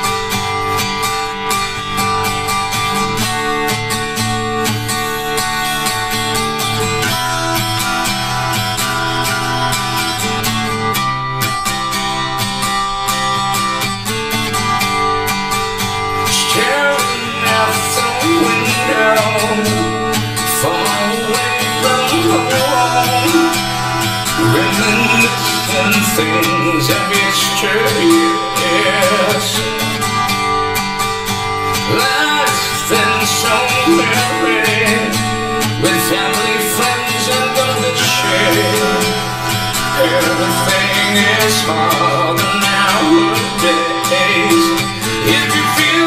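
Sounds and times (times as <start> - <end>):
pop ballad with guitar and beat: 0.0 - 46.0
person singing: 16.5 - 29.8, 31.9 - 46.0.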